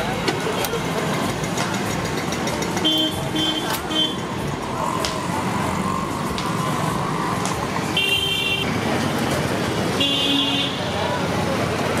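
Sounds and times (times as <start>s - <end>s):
street traffic din: 0.0s - 12.0s
vehicle horn toots: 8.0s - 8.7s.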